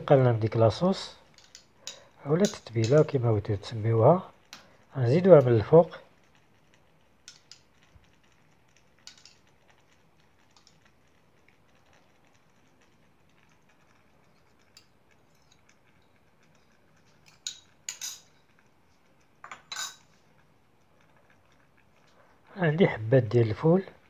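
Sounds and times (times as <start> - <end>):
metal spoon clinking on bowl: 1.4 - 3.1, 17.2 - 18.4, 19.4 - 20.0.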